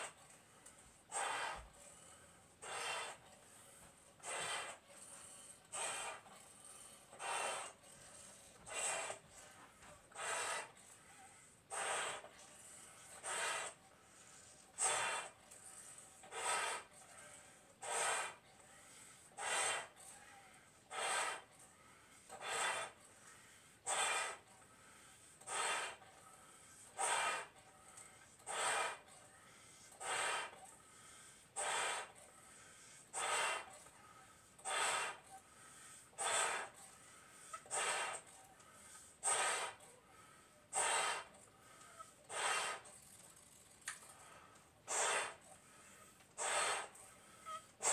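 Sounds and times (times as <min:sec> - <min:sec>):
person inflating balloons by mouth: 0:00.0 - 0:47.9
quick sharp breaths: 0:00.0 - 0:47.9
balloons stretching: 0:02.6 - 0:03.3, 0:04.2 - 0:05.0, 0:23.9 - 0:24.4, 0:40.7 - 0:41.3, 0:42.2 - 0:43.0, 0:44.9 - 0:45.4.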